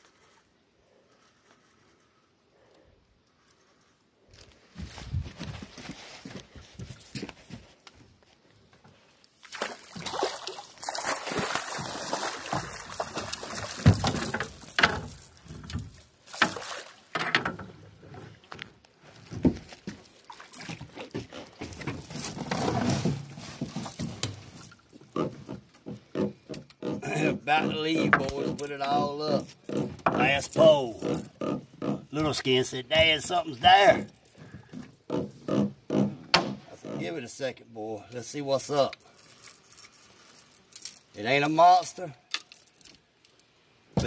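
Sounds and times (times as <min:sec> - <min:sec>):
fish flopping in net on deck: 0:09.4 - 0:14.4
water splashing: 0:09.4 - 0:14.7, 0:16.2 - 0:17.1.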